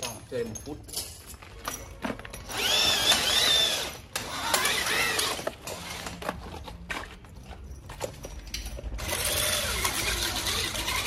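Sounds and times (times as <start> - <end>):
core drill motor whining: 2.5 - 6.1, 9.0 - 11.0.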